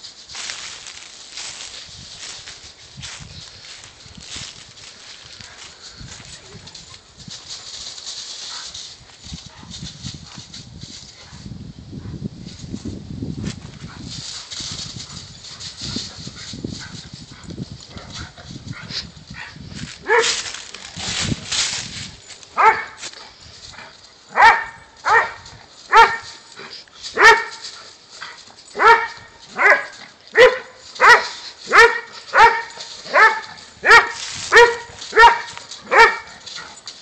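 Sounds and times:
dogs running through dry leaves: 0:00.0 - 0:11.2, 0:12.6 - 0:37.0
dog barking: 0:19.4 - 0:20.4, 0:22.6 - 0:23.0, 0:24.3 - 0:26.3, 0:27.2 - 0:27.6, 0:28.8 - 0:36.4.

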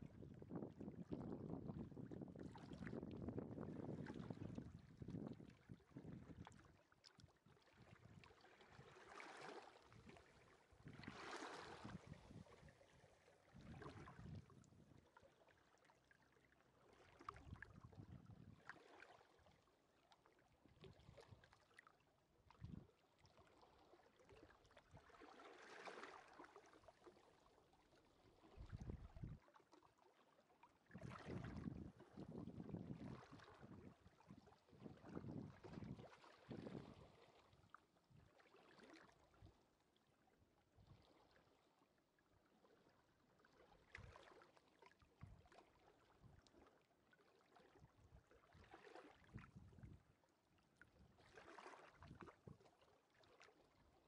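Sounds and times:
wind rumble on microphone: 0:00.0 - 0:06.6, 0:10.8 - 0:12.9, 0:13.5 - 0:15.0, 0:17.3 - 0:18.6, 0:22.6 - 0:22.9, 0:28.5 - 0:29.4, 0:31.0 - 0:37.2, 0:49.3 - 0:50.1.

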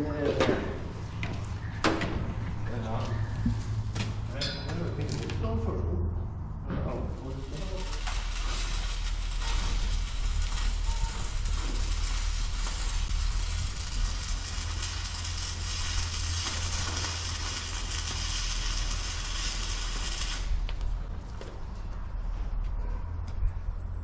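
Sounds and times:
steady low hum: 0:00.0 - 0:24.0
arc welding crackling sizzle: 0:07.1 - 0:21.4.

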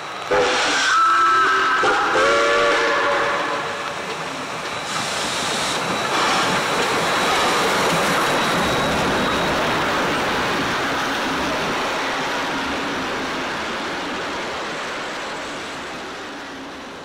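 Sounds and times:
approaching train noise: 0:00.0 - 0:17.0
steam locomotive whistle: 0:00.2 - 0:04.0.

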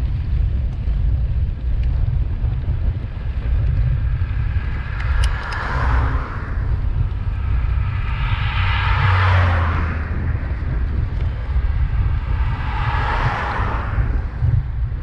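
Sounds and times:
wind rumble on microphone: 0:00.0 - 0:15.0
cars passing: 0:03.3 - 0:15.0.

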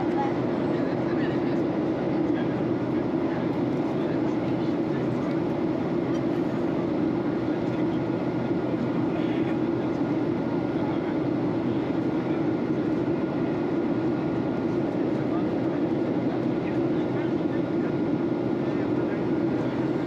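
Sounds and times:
airplane cabin drone: 0:00.0 - 0:20.0.

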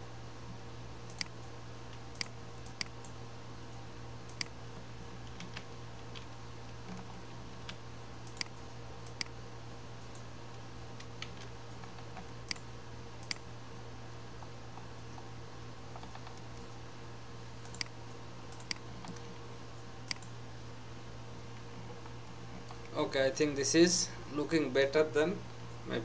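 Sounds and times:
steady low hum: 0:00.0 - 0:26.0
computer mouse clicks: 0:01.1 - 0:01.4, 0:02.2 - 0:03.2, 0:04.3 - 0:04.5, 0:07.6 - 0:09.4, 0:11.0 - 0:13.4, 0:17.6 - 0:17.9, 0:18.5 - 0:19.2, 0:20.1 - 0:20.3.

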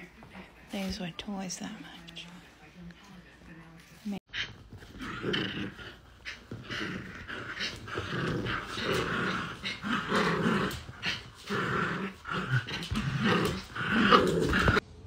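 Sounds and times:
small dogs growling: 0:04.3 - 0:14.8.

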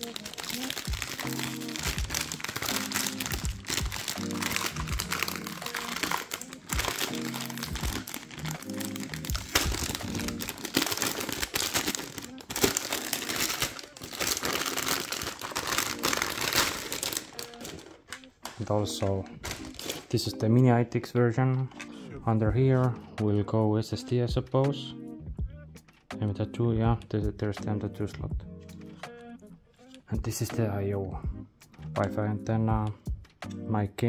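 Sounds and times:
plastic bag crinkling: 0:00.0 - 0:20.2
background music: 0:00.0 - 0:34.0.

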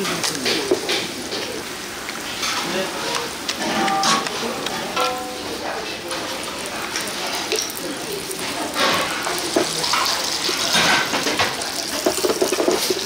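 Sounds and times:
utensils and dishes clattering: 0:00.0 - 0:13.0
water running from tap: 0:05.3 - 0:13.0.

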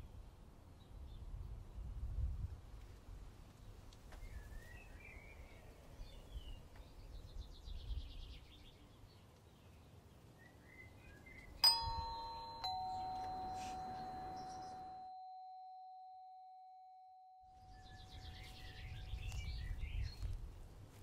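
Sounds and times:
faint birds chirping: 0:03.6 - 0:15.0, 0:17.6 - 0:20.5
two-tone doorbell chime: 0:11.6 - 0:17.8.

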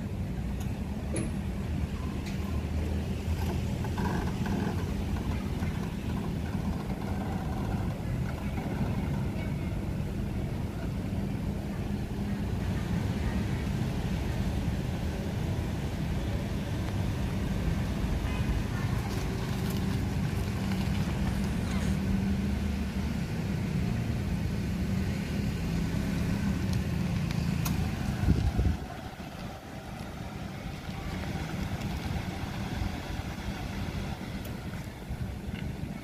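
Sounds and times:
car engine running: 0:03.0 - 0:12.3, 0:24.0 - 0:36.0.

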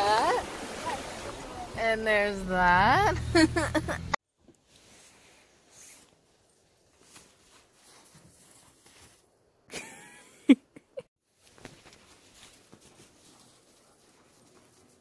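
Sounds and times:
footsteps crunching in snow: 0:06.8 - 0:09.4, 0:11.4 - 0:15.0.

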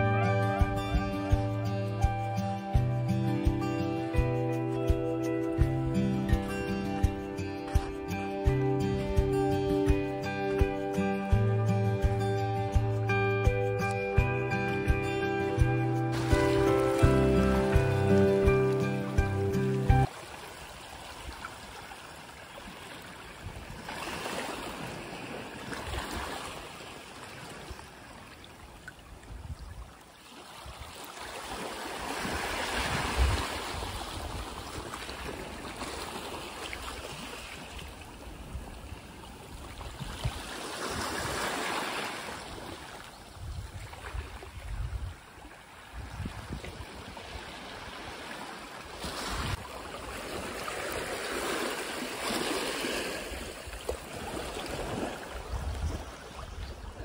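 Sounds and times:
low rumble of waves: 0:16.0 - 0:57.0
small waves washing on rocks: 0:20.0 - 0:29.2, 0:30.0 - 0:56.6.

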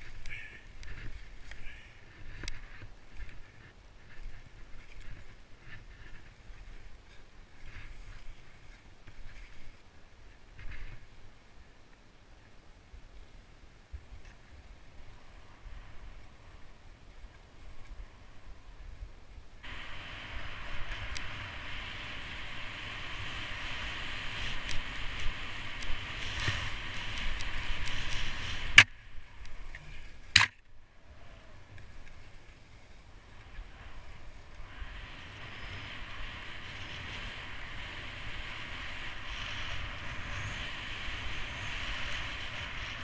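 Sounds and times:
skis hissing over snow: 0:00.0 - 0:09.9, 0:19.6 - 0:30.3, 0:31.2 - 0:43.0
wind rumble on microphone: 0:00.0 - 0:43.0.

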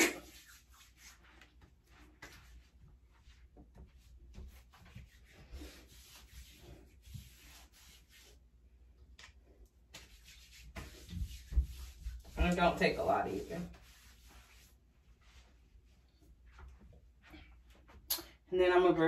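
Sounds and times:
hands rubbing skin: 0:00.0 - 0:08.4, 0:09.1 - 0:17.0.

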